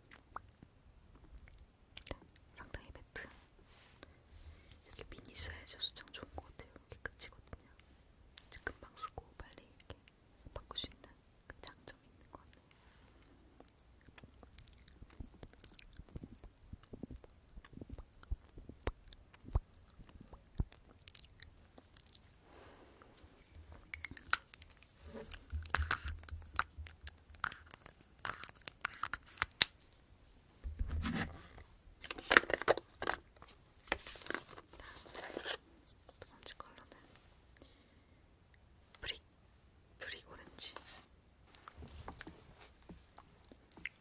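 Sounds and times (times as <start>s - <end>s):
wet lip clicks and smacks: 0.1s - 0.7s, 13.6s - 22.3s, 23.8s - 29.8s.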